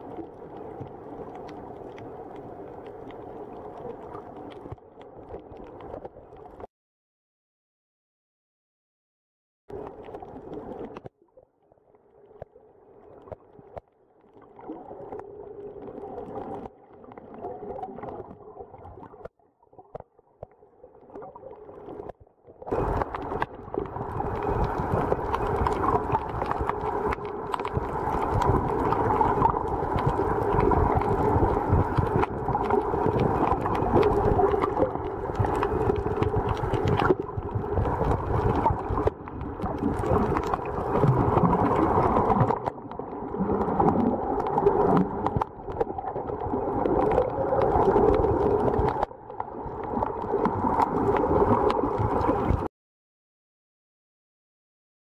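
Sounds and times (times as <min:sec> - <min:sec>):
underwater sloshing and gurgling: 0:00.0 - 0:06.7, 0:09.7 - 0:52.7.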